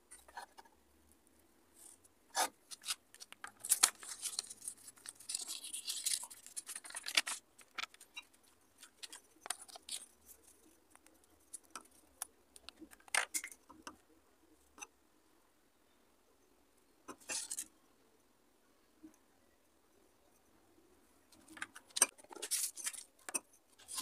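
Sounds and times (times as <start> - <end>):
paper rustling: 2.7 - 11.7.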